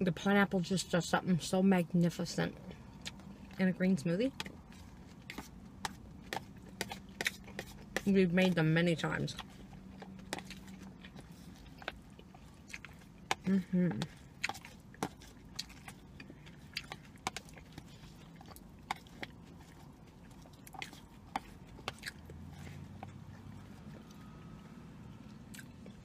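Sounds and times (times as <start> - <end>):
low steady hum: 0.0 - 26.0
wet chewing mouth smacks: 9.3 - 24.2, 25.3 - 26.0.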